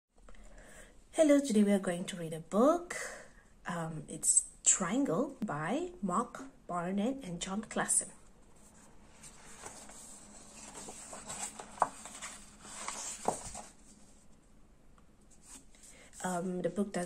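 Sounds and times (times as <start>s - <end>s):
paper pages rustling: 8.6s - 14.4s.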